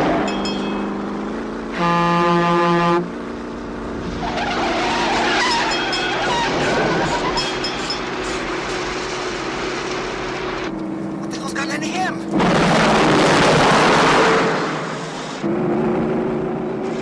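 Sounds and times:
vehicles passing at speed: 0.0s - 17.0s
vehicle horn blasts: 1.7s - 3.1s
tyre squeals: 4.2s - 8.5s.

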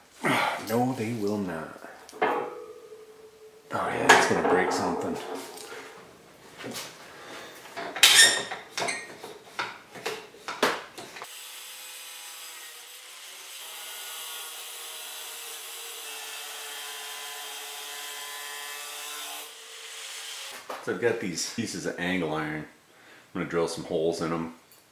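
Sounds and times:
metal grill grate clanking: 2.2s - 6.0s.

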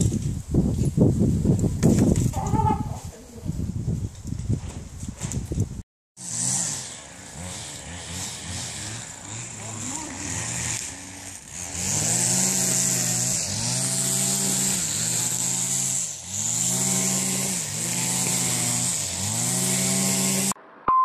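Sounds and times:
small engine running: 6.2s - 20.6s.

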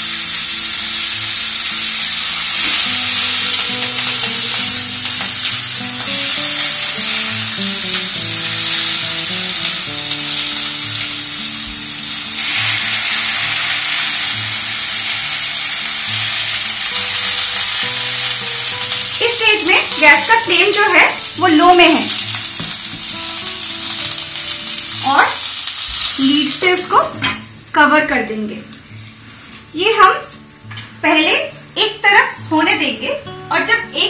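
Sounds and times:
background music: 0.0s - 34.0s
fish sizzling in a pan: 0.0s - 34.0s.

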